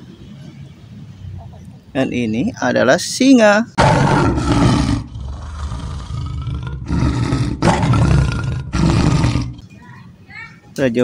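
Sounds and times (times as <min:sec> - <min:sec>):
lion growling: 0:03.8 - 0:09.6
lion roaring: 0:03.8 - 0:09.6.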